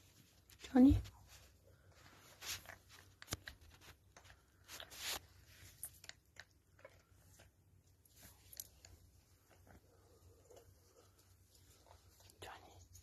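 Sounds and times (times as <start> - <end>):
kitten chewing and smacking: 2.5 - 12.0.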